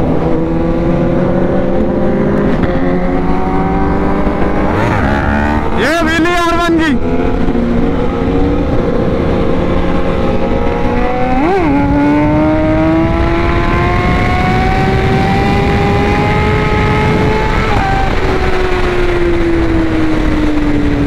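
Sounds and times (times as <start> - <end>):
motorcycle engine at high speed: 0.0 - 21.0
wind rush over microphone: 7.0 - 21.0.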